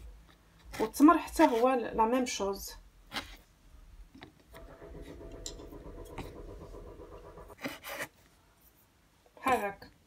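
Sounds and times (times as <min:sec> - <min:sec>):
mechanical hum with tones: 0:04.5 - 0:07.6.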